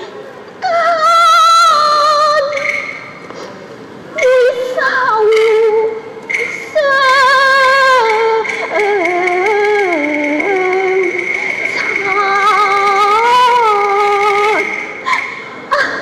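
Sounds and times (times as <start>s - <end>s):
high voice opera singing: 0.6s - 3.1s, 4.2s - 16.0s
steady high held tone: 4.1s - 16.0s.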